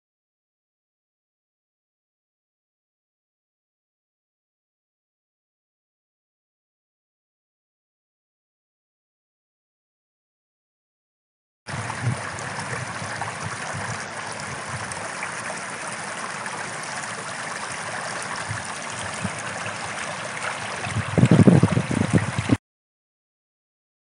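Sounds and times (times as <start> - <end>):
stream babbling over stones: 11.7 - 22.6.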